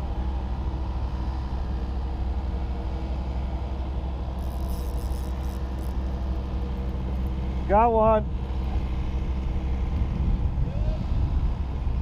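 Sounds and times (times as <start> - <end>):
low rumble: 0.0 - 12.0
fishing reel clicking: 4.4 - 7.4.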